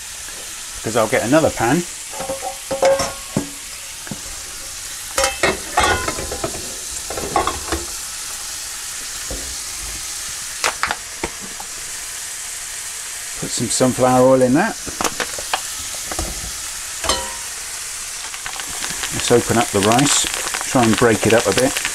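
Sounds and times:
meat and vegetables sizzling: 0:00.0 - 0:21.9
metal pans clattering: 0:01.5 - 0:08.0, 0:14.9 - 0:17.6.

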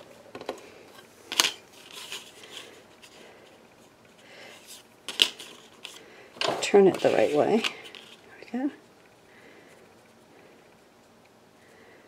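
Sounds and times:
paper sliding and rustling: 0:06.8 - 0:08.2.

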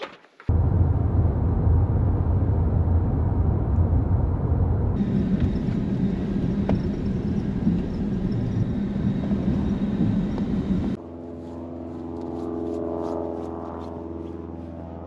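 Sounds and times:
car interior road rumble: 0:00.5 - 0:11.0
higher hum: 0:00.5 - 0:11.0.

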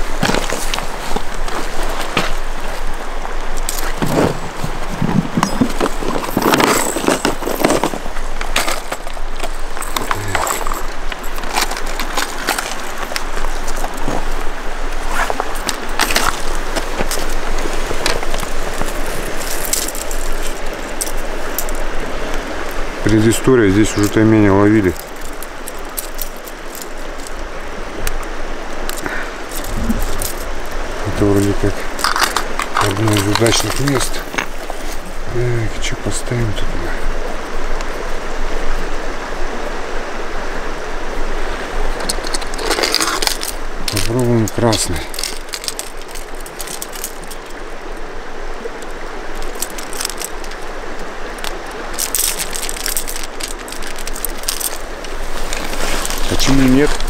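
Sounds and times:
river flowing: 0:00.0 - 0:57.0
fishing tackle clicking: 0:51.4 - 0:56.2.

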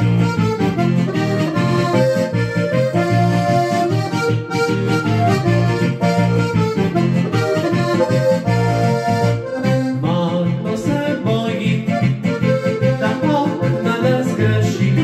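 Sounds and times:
button accordion playing folk tune: 0:00.0 - 0:15.0
man singing: 0:09.9 - 0:15.0.

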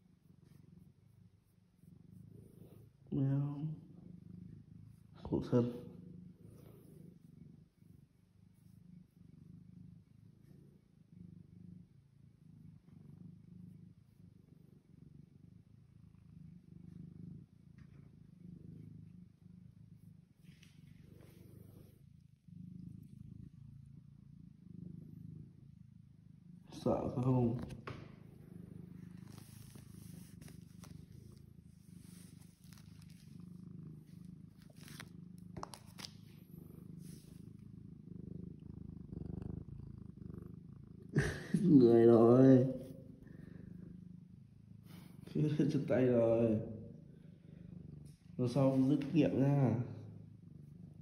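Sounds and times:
cat purring: 0:00.0 - 0:51.0.

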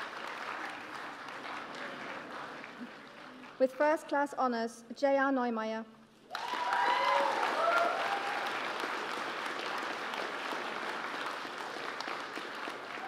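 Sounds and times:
audience applauding: 0:00.0 - 0:03.6, 0:06.3 - 0:13.0
audience cheering: 0:06.3 - 0:09.2.

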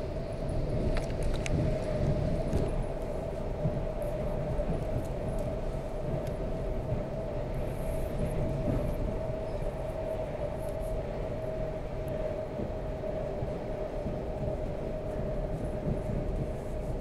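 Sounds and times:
train wheels rumbling on rails: 0:00.0 - 0:17.0
faint ticks: 0:06.2 - 0:06.4.

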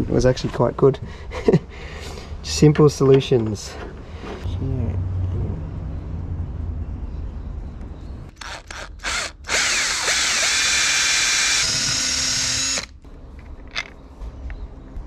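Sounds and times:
cordless drill running: 0:08.4 - 0:12.9.

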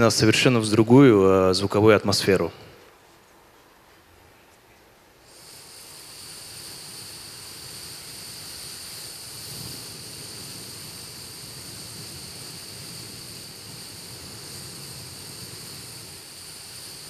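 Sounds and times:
beatboxed rushing hiss: 0:05.2 - 0:17.0.

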